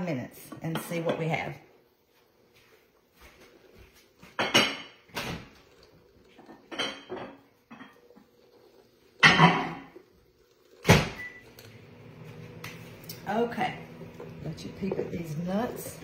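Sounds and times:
dishes and utensils clattering: 0:04.2 - 0:08.2, 0:09.2 - 0:09.9.

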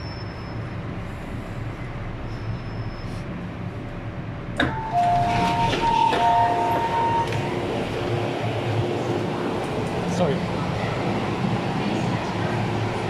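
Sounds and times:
train low rumble: 0:00.0 - 0:13.0
two-tone door chime: 0:04.6 - 0:07.4
doors sliding open: 0:04.6 - 0:08.0.

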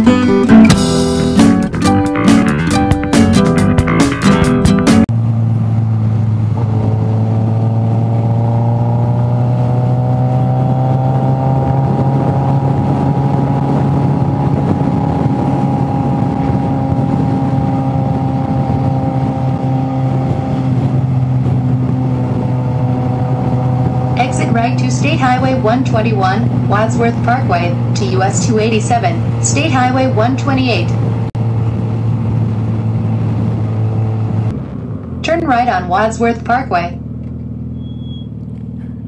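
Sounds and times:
guitar music sting: 0:00.0 - 0:05.0
motorcycle engine running: 0:00.0 - 0:39.0
wind rushing: 0:10.4 - 0:35.2.

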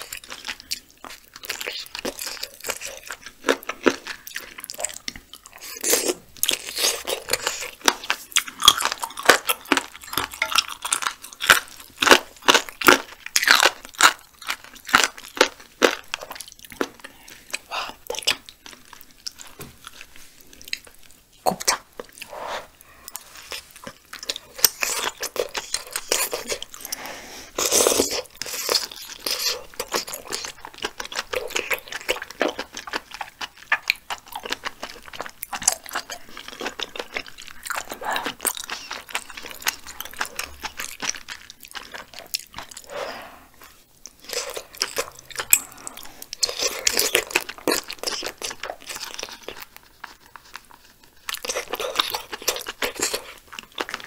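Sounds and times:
close chewing mouth sounds: 0:00.0 - 0:54.0.

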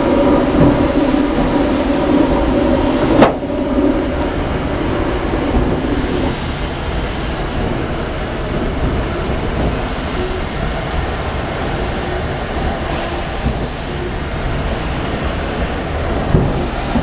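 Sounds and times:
high steam hiss: 0:00.0 - 0:17.0
steam locomotive rumbling: 0:00.0 - 0:17.0.

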